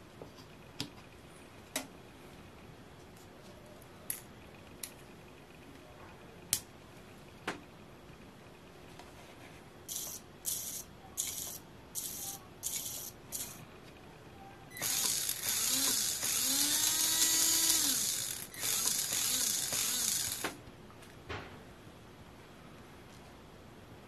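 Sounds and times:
electric motor whirring: 0:14.8 - 0:20.5.

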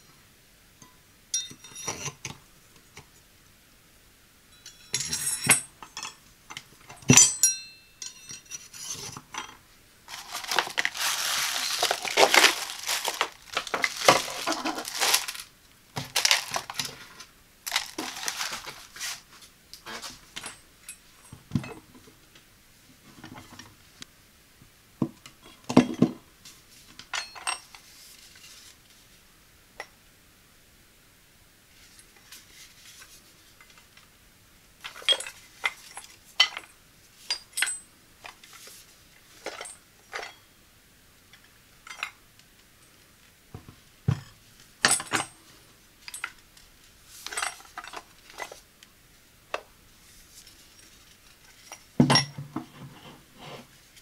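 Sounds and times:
steel knives clinking: 0:01.4 - 0:02.0, 0:04.6 - 0:06.1, 0:07.2 - 0:08.7
plastic wrapping crinkling: 0:10.1 - 0:19.5.

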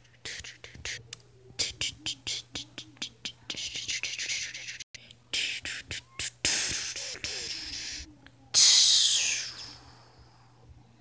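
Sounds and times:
mouth-made hissing bursts: 0:08.6 - 0:09.8.

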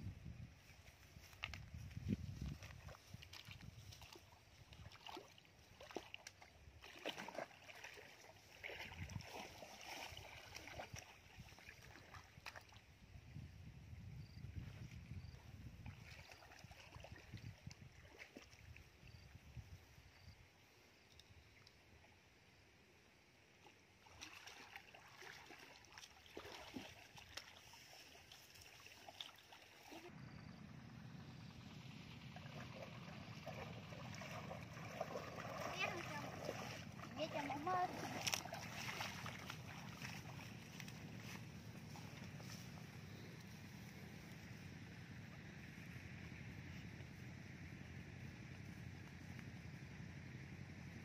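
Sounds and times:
wading through shallow water: 0:00.5 - 0:13.6, 0:14.2 - 0:20.4, 0:23.4 - 0:51.0
rope dragged through water: 0:00.8 - 0:12.9, 0:14.7 - 0:18.9, 0:23.6 - 0:30.1, 0:31.8 - 0:47.2
steady low rumble: 0:30.1 - 0:51.0.

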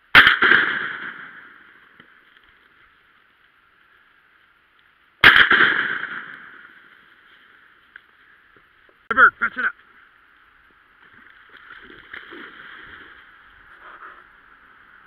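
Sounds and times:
shotgun shot echoing: 0:00.1 - 0:01.7, 0:05.2 - 0:06.9.

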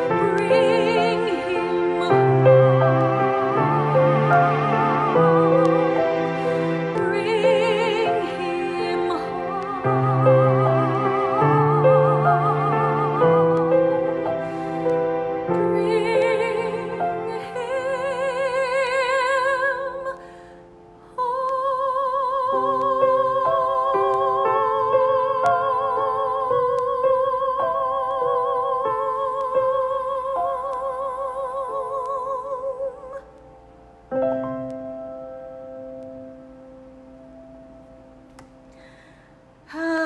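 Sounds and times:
woman singing with vibrato: 0:00.0 - 0:14.8, 0:15.5 - 0:20.3, 0:21.1 - 0:33.3, 0:39.7 - 0:40.0
sustained instrumental chords: 0:00.0 - 0:21.1.

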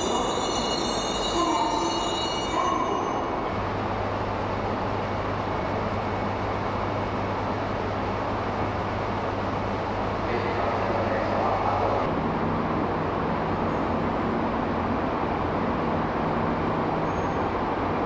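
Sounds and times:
high-pitched train tones: 0:00.0 - 0:03.8
train equipment whirring hum: 0:00.0 - 0:18.0.

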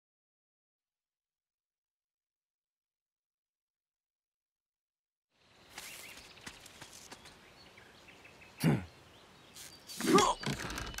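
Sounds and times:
bird chirps: 0:05.4 - 0:11.0
effortful grunts: 0:08.6 - 0:08.9, 0:09.9 - 0:10.6.

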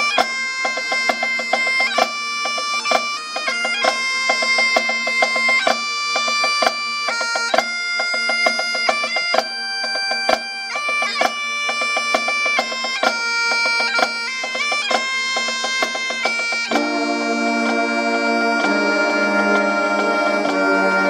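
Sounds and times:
bagpipe playing a tune: 0:00.0 - 0:21.0
brass band playing: 0:13.9 - 0:21.0.

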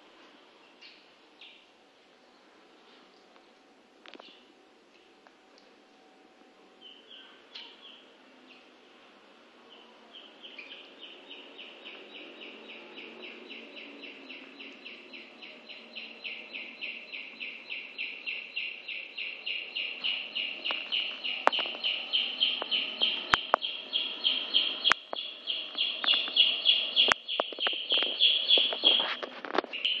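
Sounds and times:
chick peeping: 0:09.7 - 0:30.0.

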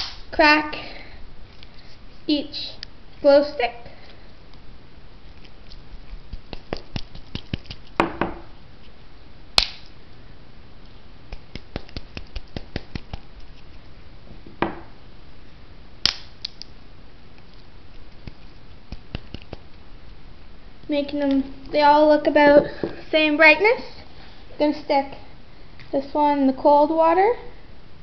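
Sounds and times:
glow sticks snapping: 0:00.0 - 0:00.2, 0:09.6 - 0:09.9, 0:16.0 - 0:19.7.

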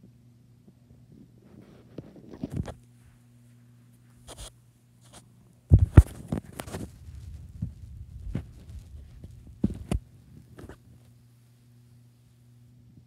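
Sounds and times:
dull low thumps: 0:05.7 - 0:10.6.

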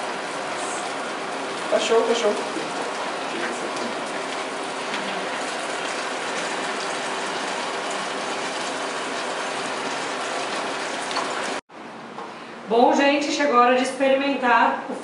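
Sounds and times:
chicken deep-frying in oil: 0:00.0 - 0:11.6.

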